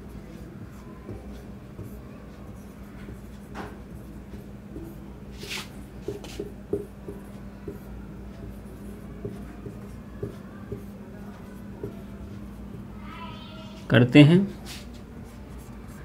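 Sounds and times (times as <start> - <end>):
steady low hum: 0.0 - 13.8
marker squeaking on whiteboard: 0.7 - 13.0.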